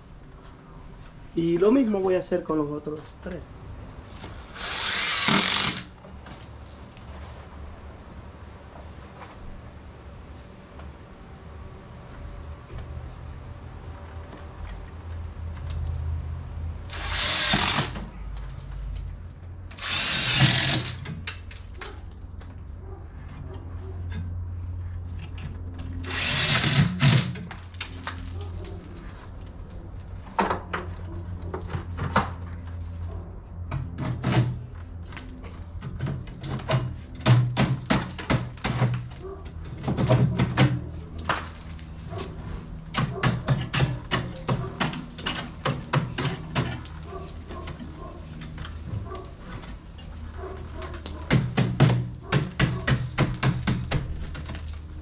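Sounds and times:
cordless drill driving screws: 4.5s - 5.9s, 16.9s - 18.0s, 19.7s - 21.1s, 26.0s - 27.4s.

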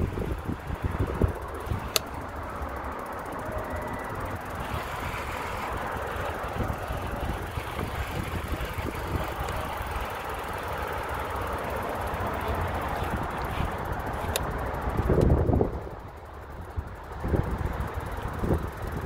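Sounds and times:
wind rumble on microphone: 0.0s - 2.4s, 3.4s - 10.2s, 12.8s - 19.0s
tyres rolling on concrete: 0.0s - 15.0s
traffic hum: 0.0s - 19.0s.

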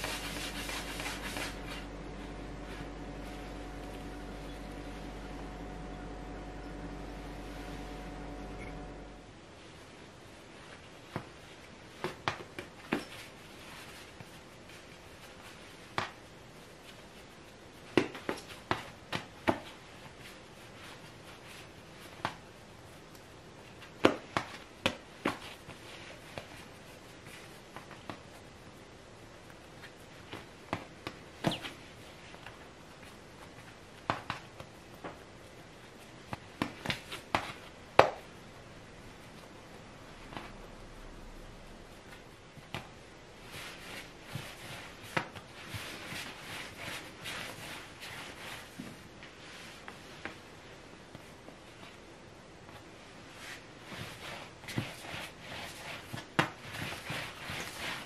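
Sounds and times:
dough swishing on wood: 0.0s - 9.3s, 41.6s - 50.3s, 53.3s - 58.0s.

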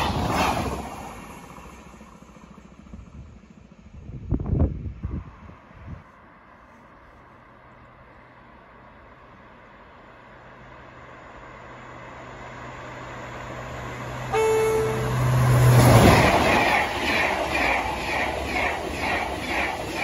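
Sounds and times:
high-speed train passing: 0.0s - 6.6s, 8.1s - 20.0s
rhythmic beat of passing cars: 12.4s - 20.0s
train horn blast: 14.3s - 16.2s.

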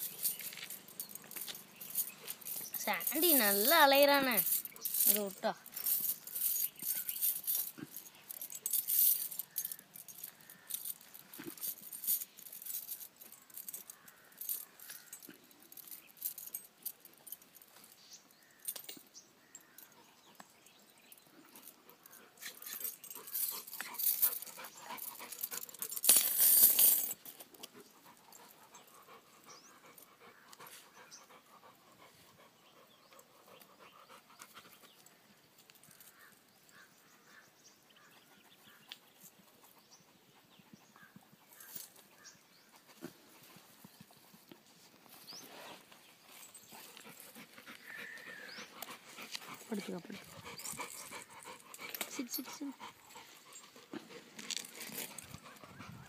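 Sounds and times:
dog sniffing and snuffling: 38.0s - 56.0s
rustling of dry leaves: 43.1s - 56.0s.

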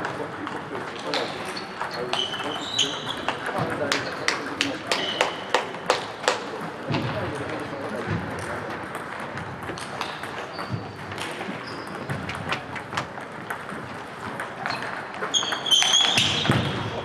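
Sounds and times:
table tennis balls clicking: 0.0s - 17.0s
high squeak: 14.7s - 16.6s.

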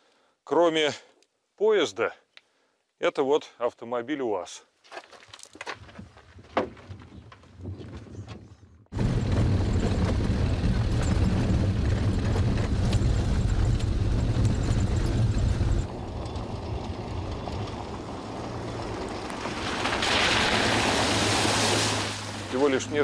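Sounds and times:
van engine and road rumble: 6.8s - 23.0s
water spraying under wheels: 9.0s - 23.0s.

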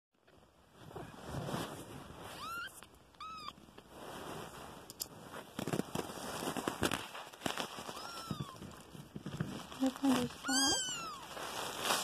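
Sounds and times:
rustling against a blanket: 0.2s - 12.0s
kitten mewing: 9.8s - 11.4s.

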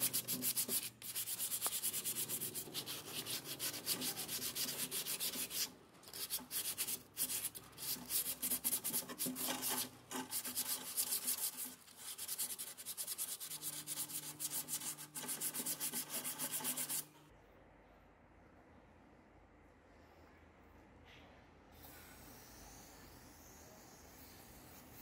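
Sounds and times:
abrasive scratching rust off iron: 0.0s - 17.0s.

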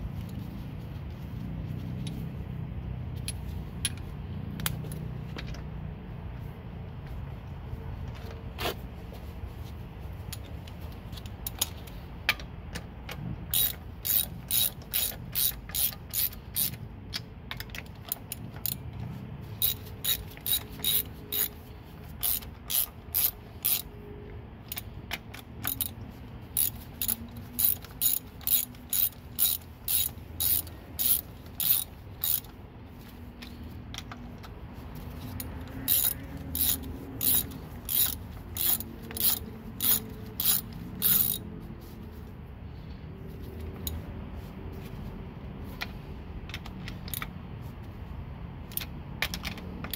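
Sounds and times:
socket ratchet clicking: 10.4s - 19.0s, 19.6s - 24.0s, 24.6s - 41.6s, 46.4s - 47.4s, 48.6s - 49.9s.

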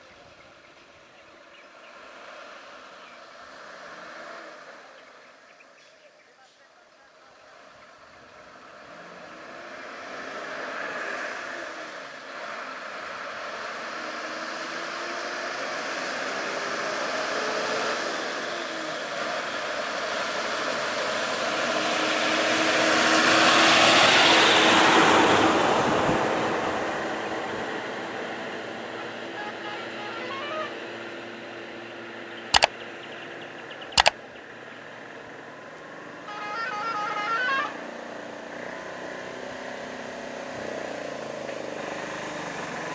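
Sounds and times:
vehicle passing by: 7.6s - 32.4s.

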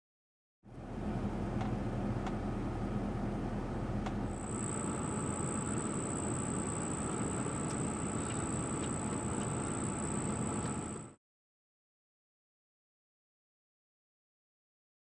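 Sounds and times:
outdoor background rumble: 0.6s - 11.2s.

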